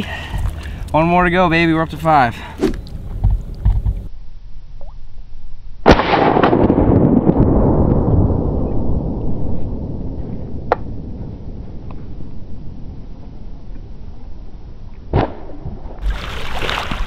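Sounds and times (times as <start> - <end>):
shotgun blast: 5.8 - 7.7, 15.1 - 15.6.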